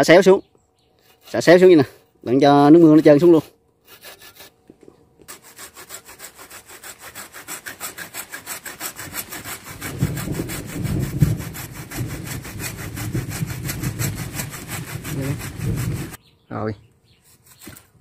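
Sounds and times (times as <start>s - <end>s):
hand saw cutting branch: 2.4s - 4.6s, 5.2s - 16.2s, 17.2s - 18.0s.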